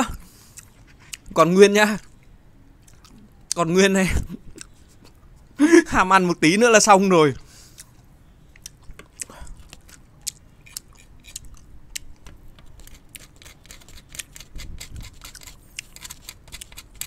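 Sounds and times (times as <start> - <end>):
needle scraping sugar candy: 12.6 - 17.0.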